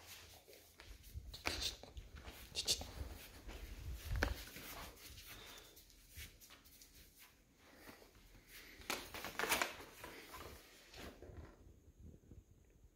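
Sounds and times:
plastic bag rustling: 0:07.7 - 0:11.4.

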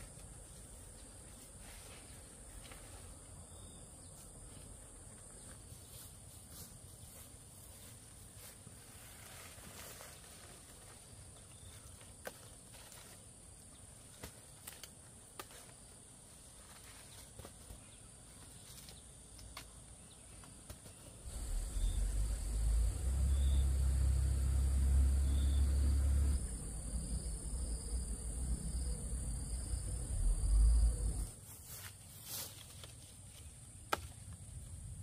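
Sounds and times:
insects droning: 0:00.0 - 0:35.0
loud low rumble: 0:21.3 - 0:31.3.

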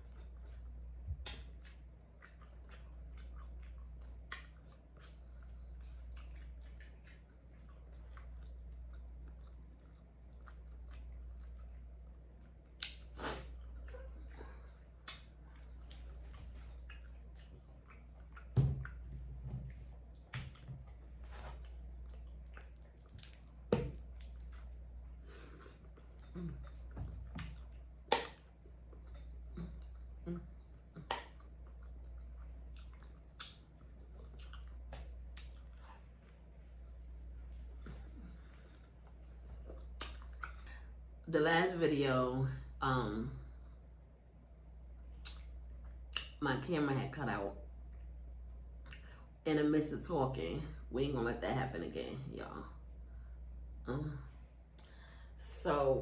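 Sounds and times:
close chewing: 0:00.0 - 0:36.4
low steady hum: 0:00.0 - 0:56.0.

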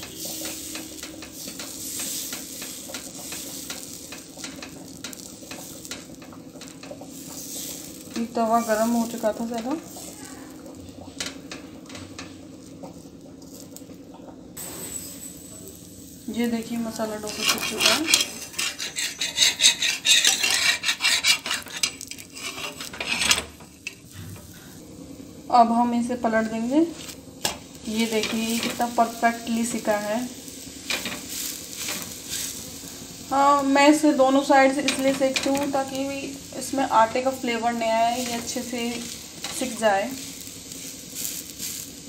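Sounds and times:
batter sizzling on a griddle: 0:00.0 - 0:42.0
spoon rubbing on a griddle: 0:07.3 - 0:10.6, 0:16.9 - 0:23.6, 0:37.6 - 0:42.0.

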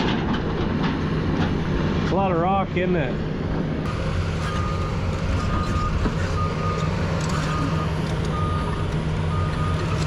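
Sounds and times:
diesel engine running: 0:00.0 - 0:10.0
backup alarm beeping: 0:04.5 - 0:10.0.

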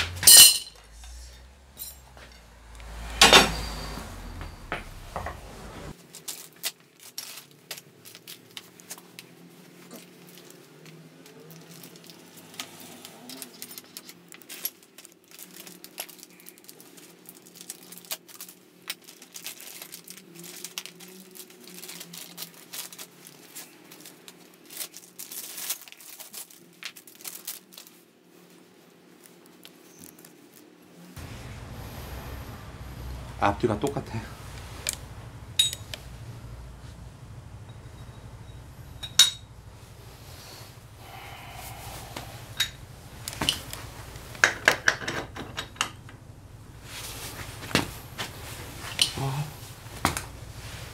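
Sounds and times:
metal parts clicking and tapping: 0:00.0 - 0:00.9, 0:35.6 - 0:36.0, 0:39.0 - 0:39.4, 0:42.6 - 0:42.8, 0:44.4 - 0:46.1
faint low hum: 0:00.0 - 0:06.0, 0:31.2 - 0:50.9
rag rustling: 0:31.2 - 0:50.9.

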